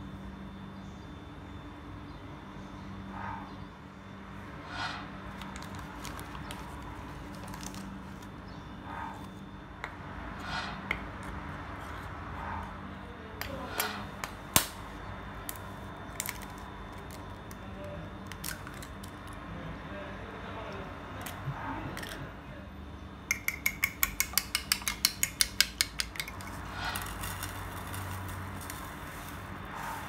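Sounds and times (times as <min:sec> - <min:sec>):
steady low hum: 0:00.0 - 0:30.0
spoon scraping through flour: 0:26.3 - 0:30.0.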